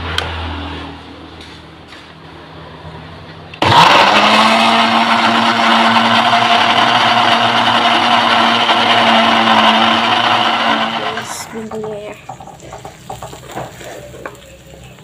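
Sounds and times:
blender motor humming: 0:03.6 - 0:11.9.

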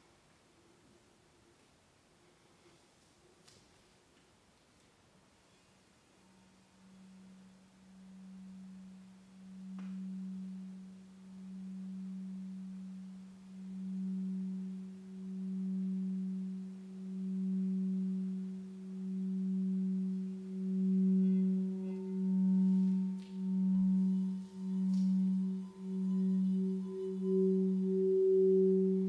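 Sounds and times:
crystal singing bowls ringing: 0:06.4 - 0:29.0
higher singing bowl tone: 0:06.4 - 0:29.0.

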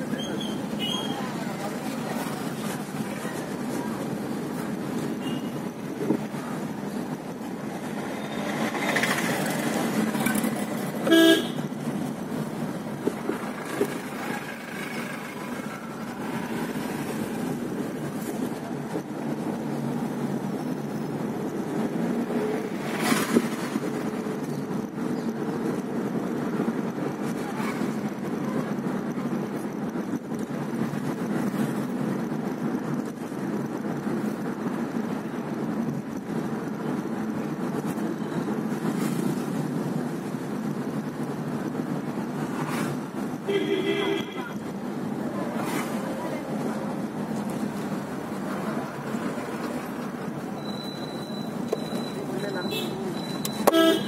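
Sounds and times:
car engine and road drone: 0:00.0 - 0:54.0
vehicle horn toot: 0:11.0 - 0:11.7, 0:43.5 - 0:44.6, 0:52.6 - 0:54.0.

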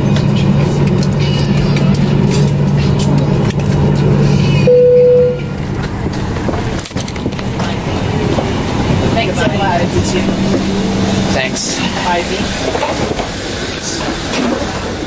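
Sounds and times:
low cabin hum: 0:00.0 - 0:15.0
single low chime: 0:04.7 - 0:05.5.

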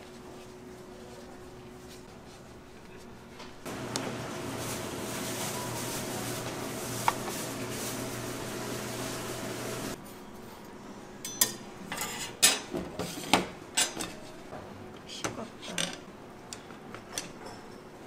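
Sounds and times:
machine hum: 0:03.7 - 0:10.0
dishes and utensils clinking: 0:11.2 - 0:14.2, 0:17.0 - 0:18.0.

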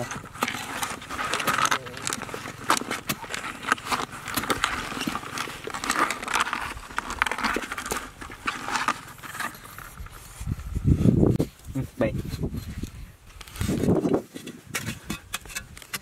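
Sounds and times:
turtles scratching in plastic bucket: 0:00.0 - 0:11.4.

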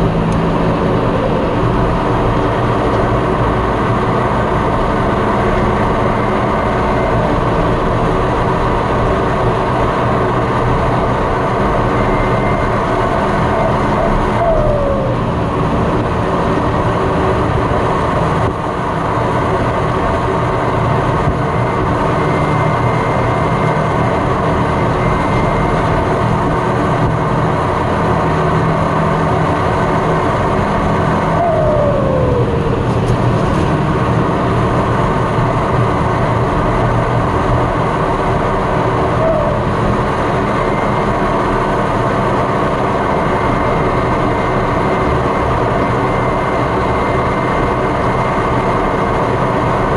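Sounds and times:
tractor diesel engine running: 0:00.0 - 0:49.9
high turbo whistle: 0:11.6 - 0:15.3, 0:31.2 - 0:32.9, 0:39.0 - 0:39.8.

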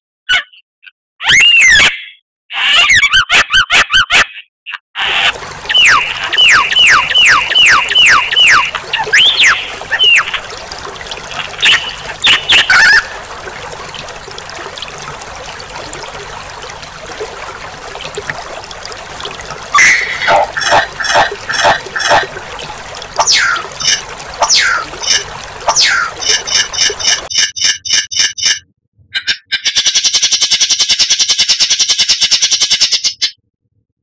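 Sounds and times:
bird chattering notes: 0:05.7 - 0:10.5, 0:11.3 - 0:13.1.

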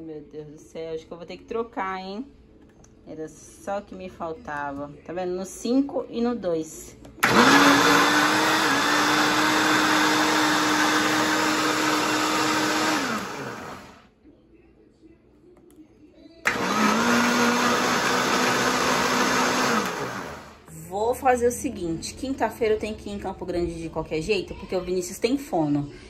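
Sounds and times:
blender motor spinning water: 0:07.2 - 0:14.0, 0:16.5 - 0:20.6.

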